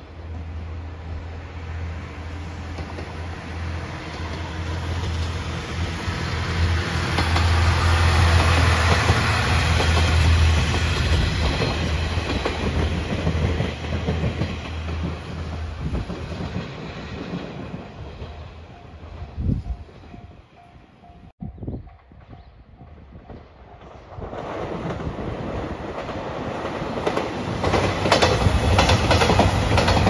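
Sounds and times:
train wheels clicking over rail joints: 7.0s - 18.4s, 22.2s - 30.0s.

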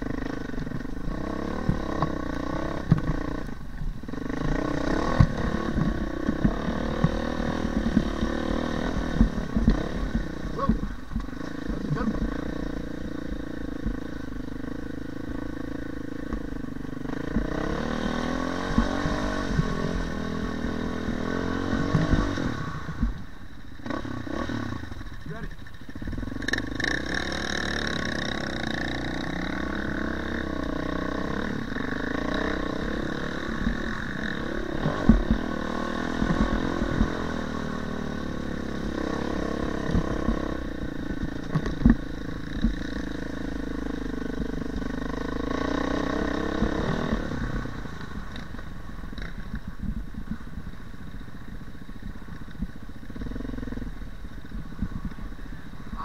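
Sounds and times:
dirt bike engine running: 0.0s - 56.0s
sharp knocks from bumps: 2.8s - 3.3s, 5.1s - 12.4s, 41.4s - 42.0s.

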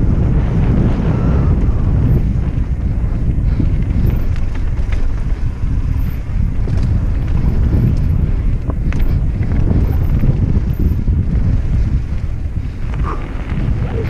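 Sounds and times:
bike knocks and rattles: 0.0s - 14.0s
tyres rumbling on trail: 0.0s - 14.0s
wind buffeting microphone: 0.0s - 14.0s.

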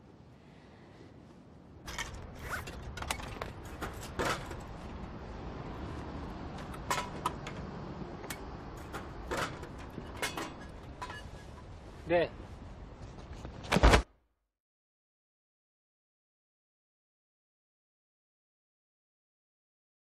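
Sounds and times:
low background rush: 0.0s - 13.8s
vending machine clicks and clatters: 6.5s - 11.1s.

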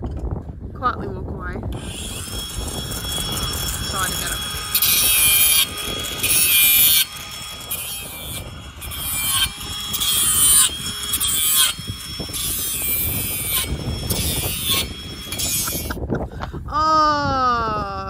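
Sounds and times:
angle grinder cutting metal: 1.7s - 16.0s.

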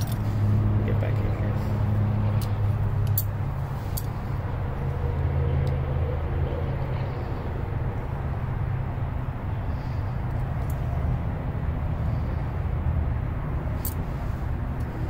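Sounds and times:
low engine-like hum: 0.0s - 15.0s
light clicks of small parts: 2.4s - 4.2s.

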